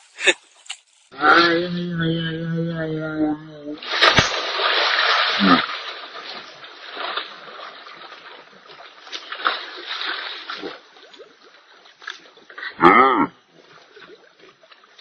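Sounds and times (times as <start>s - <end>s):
water splashing and sloshing: 3.8s - 12.7s, 13.4s - 15.0s.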